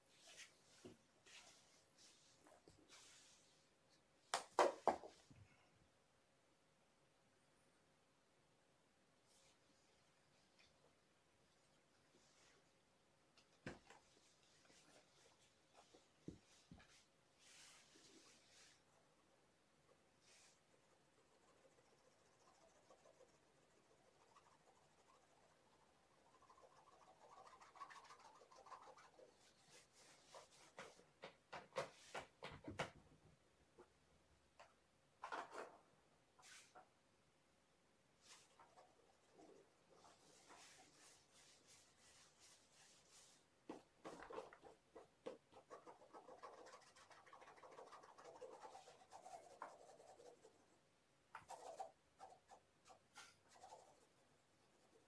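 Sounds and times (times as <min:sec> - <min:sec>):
faint scratching and rubbing: 0:00.0 - 0:03.8, 0:09.2 - 0:10.8, 0:11.6 - 0:12.8, 0:13.9 - 0:19.2, 0:19.9 - 0:31.1, 0:36.4 - 0:36.9, 0:38.2 - 0:55.0.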